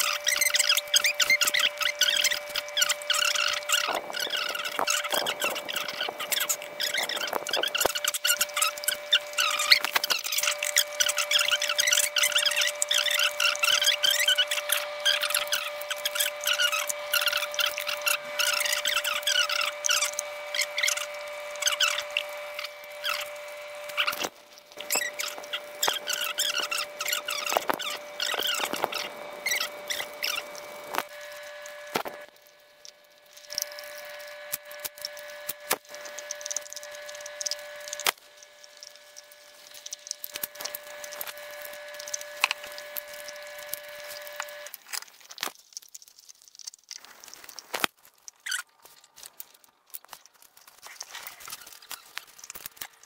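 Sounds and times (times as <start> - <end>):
faint steady whine: 0.0 - 53.0
dog chewing and licking meat: 44.1 - 53.0.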